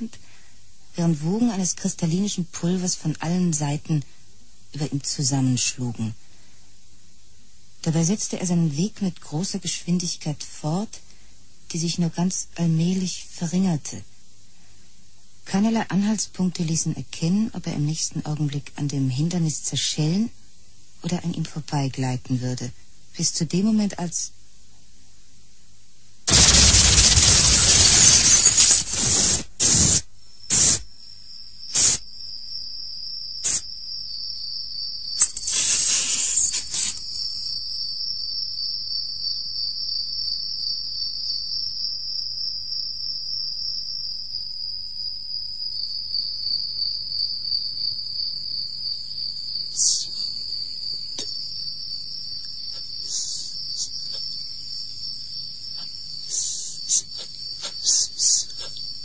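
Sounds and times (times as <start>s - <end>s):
high electronic whine: 26.3s - 30.8s
short sharp noise bursts: 26.3s - 30.8s, 31.7s - 32.0s, 35.2s - 37.1s.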